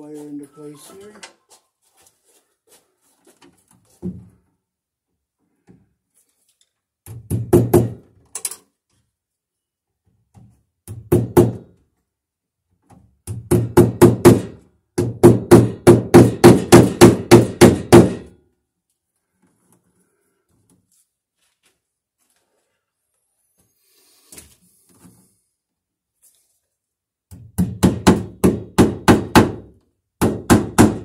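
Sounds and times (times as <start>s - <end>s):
hammer driving staples into wood: 13.2s - 18.3s, 27.3s - 31.0s.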